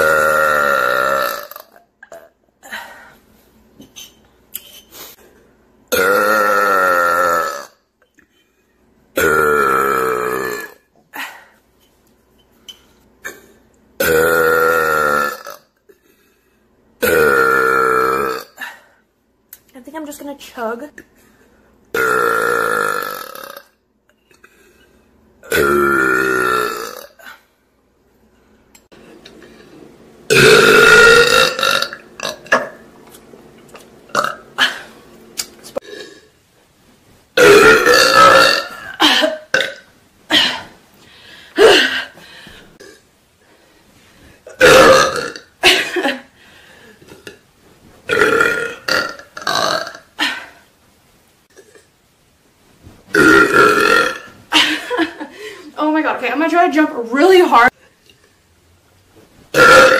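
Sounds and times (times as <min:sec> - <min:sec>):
woman belching: 0:00.0 - 0:02.4, 0:05.9 - 0:07.8, 0:09.2 - 0:10.9, 0:14.0 - 0:15.7, 0:17.0 - 0:18.6, 0:22.0 - 0:23.7, 0:25.4 - 0:27.4, 0:30.3 - 0:32.8, 0:34.1 - 0:34.9, 0:37.4 - 0:40.6, 0:44.5 - 0:46.1, 0:48.1 - 0:50.4, 0:53.1 - 0:54.3, 0:59.6 - 0:59.9.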